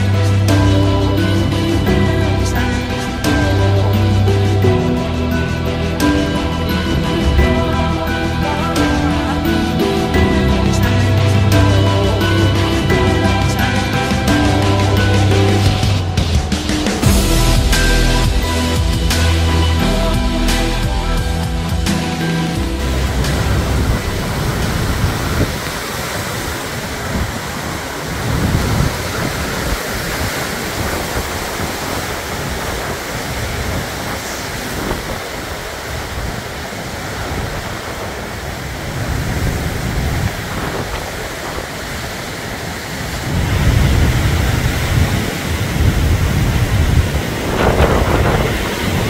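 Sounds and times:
wind blowing hard with rain: 0:00.0 - 0:49.0
wind gusts buffeting microphone: 0:21.8 - 0:49.0.

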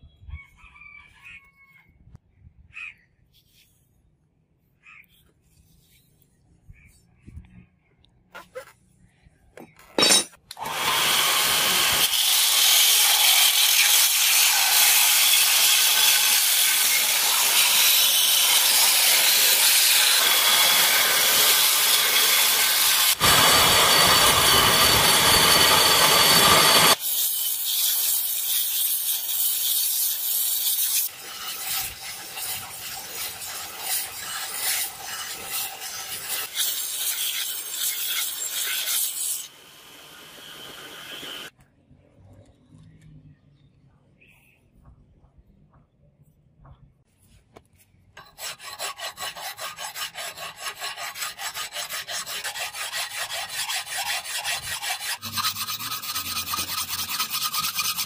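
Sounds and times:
belt grinder grinding steel: 0:10.0 - 0:41.5, 0:48.2 - 0:58.0.

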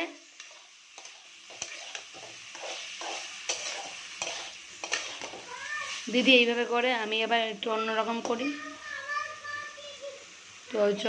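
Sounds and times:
hot oil sizzling: 0:00.0 - 0:11.0
metal spatula scraping pan: 0:00.4 - 0:06.4.

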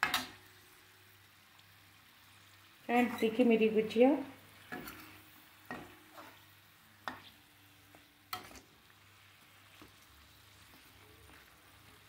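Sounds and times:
metal spoon clinking on iron pan: 0:00.0 - 0:00.4, 0:04.7 - 0:06.4
faint frying sizzle: 0:00.0 - 0:12.0.

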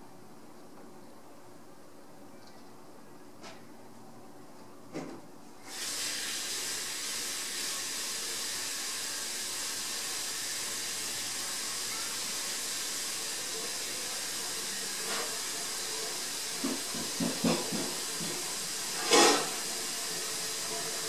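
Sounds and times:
steady hiss: 0:05.6 - 0:21.0.

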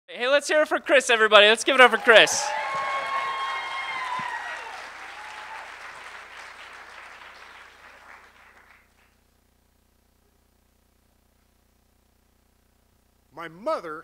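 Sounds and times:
audience applauding: 0:01.3 - 0:09.2.

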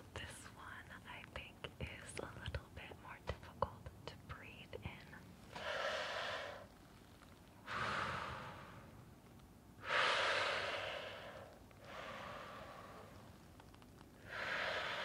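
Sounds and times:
breathing through face mask: 0:05.5 - 0:06.7, 0:07.6 - 0:08.9, 0:09.8 - 0:13.2, 0:14.2 - 0:15.0.

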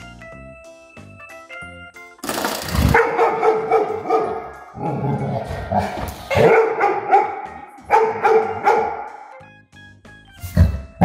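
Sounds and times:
dog barking and yipping: 0:02.8 - 0:04.7, 0:06.3 - 0:09.3.

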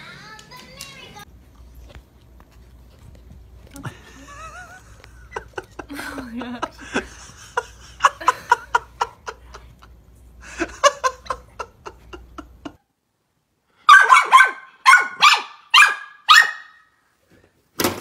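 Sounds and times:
small dog barking: 0:13.9 - 0:16.9.

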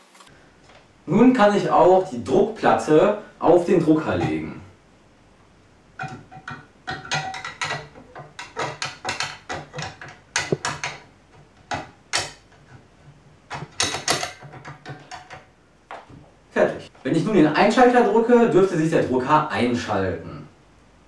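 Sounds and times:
knocks on printer: 0:08.5 - 0:11.0.

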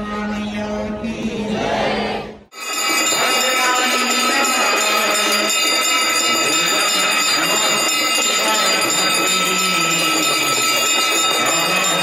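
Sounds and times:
crowd noise: 0:00.0 - 0:12.0
hand bells ringing: 0:02.5 - 0:12.0.

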